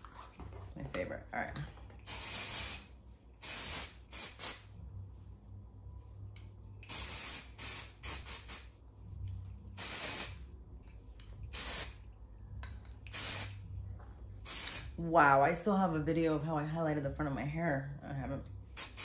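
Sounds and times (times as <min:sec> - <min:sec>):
aerosol can spraying: 0:02.0 - 0:04.7, 0:06.8 - 0:08.7, 0:09.8 - 0:10.4, 0:11.5 - 0:12.0, 0:13.1 - 0:13.6, 0:14.4 - 0:15.0, 0:18.8 - 0:19.0.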